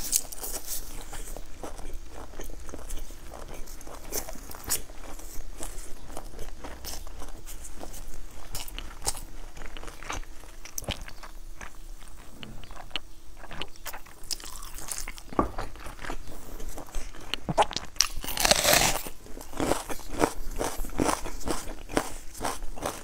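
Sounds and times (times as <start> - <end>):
crunching bites of raw onion: 17.5 - 23.0.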